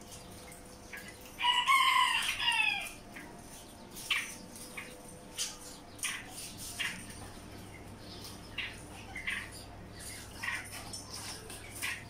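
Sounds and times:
small birds chirping: 0.0s - 12.0s
rooster crowing: 1.4s - 3.0s.

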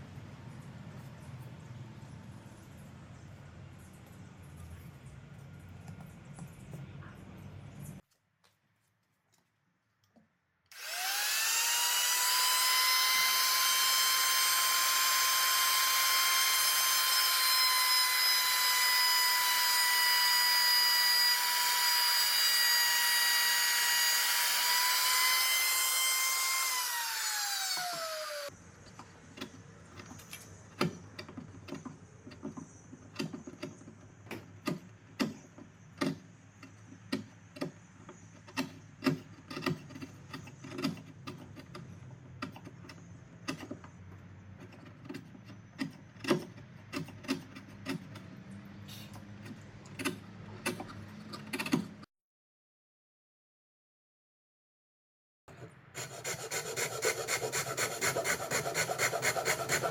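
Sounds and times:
trim router whining: 10.7s - 28.5s.

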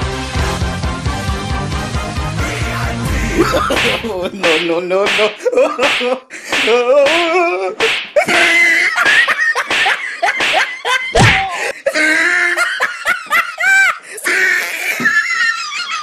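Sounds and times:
hand slaps on body: 3.7s - 7.2s, 7.8s - 8.2s, 9.1s - 11.5s
man crying out in pain: 11.2s - 12.8s.

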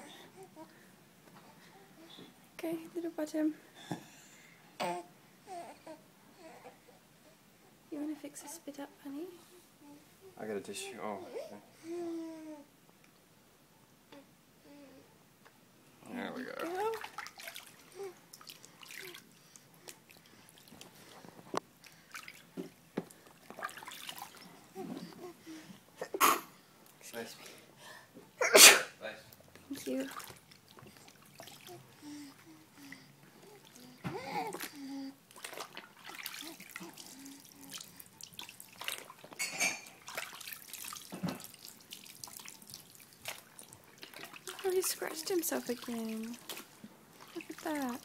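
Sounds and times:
water splashes and drips: 16.5s - 21.2s, 21.8s - 24.6s, 29.7s - 31.9s, 34.6s - 48.0s.

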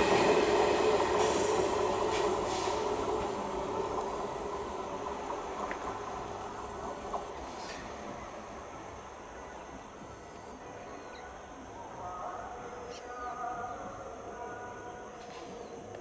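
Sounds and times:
train rumbling: 0.0s - 10.8s.

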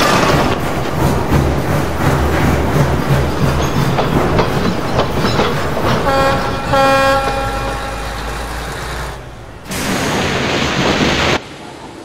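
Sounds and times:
wheels clicking over rail joints: 0.0s - 11.4s
steam whistle toots: 6.0s - 9.2s.

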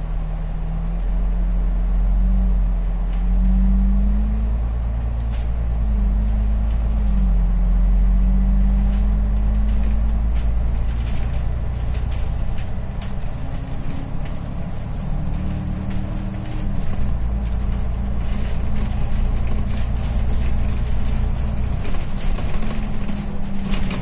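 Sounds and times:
bus engine rumble: 0.0s - 24.0s
light clicks and rattles: 8.6s - 24.0s.

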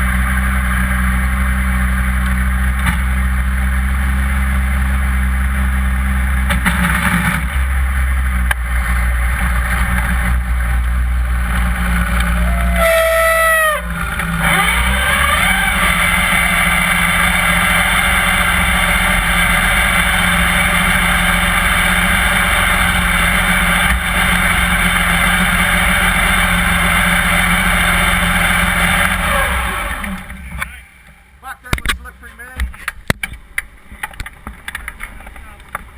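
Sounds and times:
dragster engine at low revs: 0.0s - 30.8s
falling whine: 8.2s - 31.4s.

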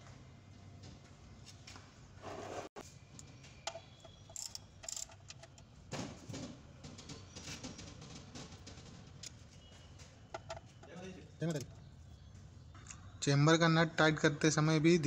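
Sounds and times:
socket wrench clicks: 3.7s - 5.5s.

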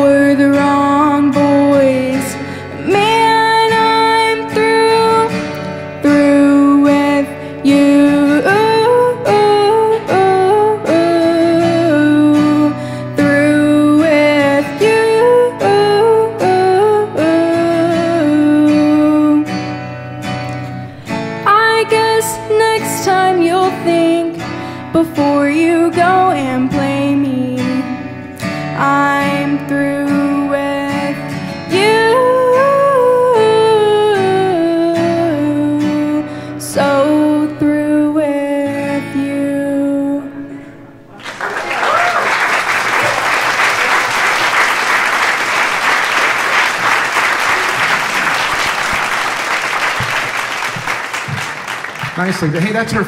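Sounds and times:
strummed acoustic guitar: 0.0s - 41.2s
audience applauding: 41.2s - 53.0s.

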